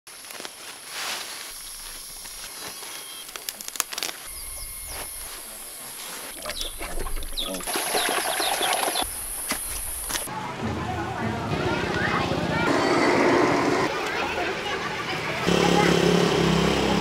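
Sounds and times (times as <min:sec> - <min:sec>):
sharp clicks and rustles: 0:02.2 - 0:04.3
chickens chirping: 0:04.3 - 0:09.2.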